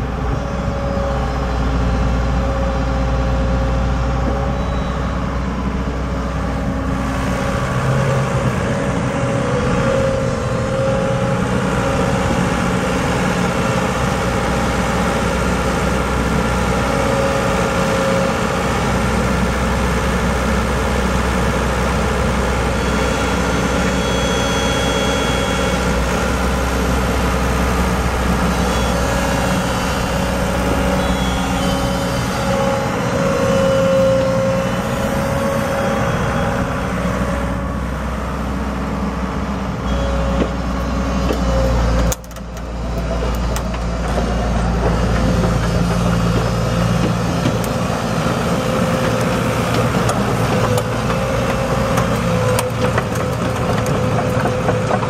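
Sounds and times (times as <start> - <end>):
excavator diesel engine under load: 0.0 - 55.0
steady hydraulic whine: 21.5 - 52.9.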